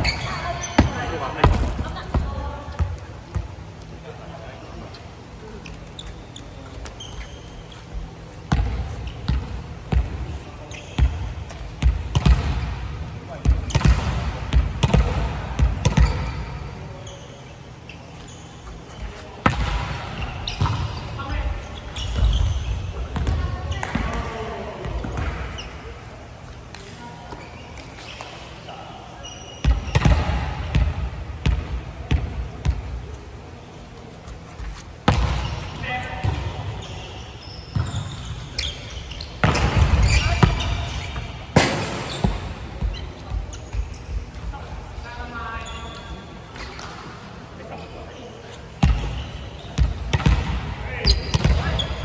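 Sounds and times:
shoes squeaking on floor: 0:00.0 - 0:02.0, 0:04.9 - 0:08.2, 0:10.4 - 0:11.7, 0:16.0 - 0:19.4, 0:20.1 - 0:24.0, 0:26.6 - 0:30.1, 0:36.6 - 0:41.4, 0:42.0 - 0:47.0, 0:48.1 - 0:50.1, 0:50.9 - 0:52.0
volleyball struck hard: 0:39.4 - 0:40.6.

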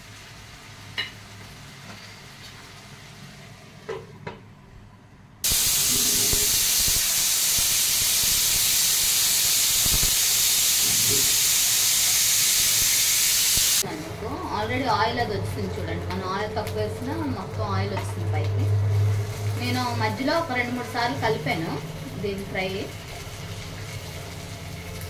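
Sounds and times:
pressure cooker whistle hissing: 0:05.4 - 0:13.8.

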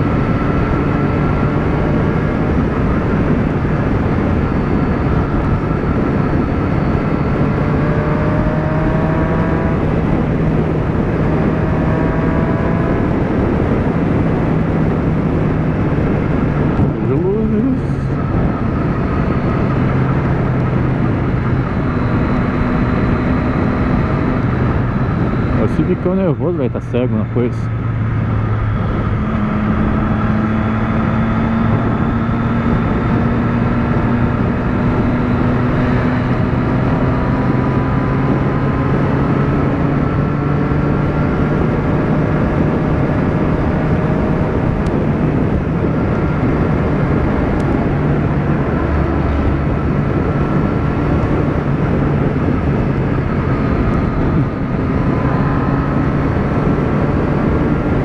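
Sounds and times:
motorcycle engine droning: 0:00.0 - 0:58.0
wind noise: 0:00.0 - 0:58.0.

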